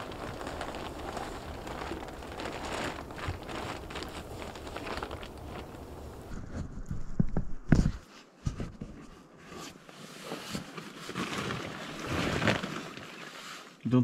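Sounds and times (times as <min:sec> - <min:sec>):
clothing and boughs rustling: 0:00.0 - 0:13.8
knocks and thumps: 0:06.4 - 0:09.1.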